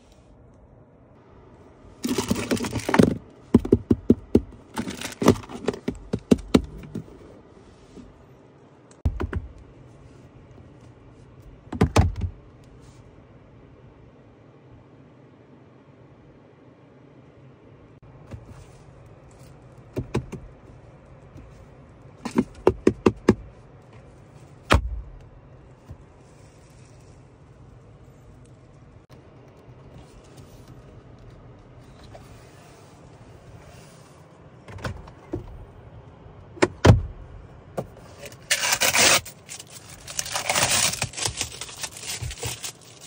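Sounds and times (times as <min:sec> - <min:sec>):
plastic bag crinkling: 0:38.5 - 0:43.0.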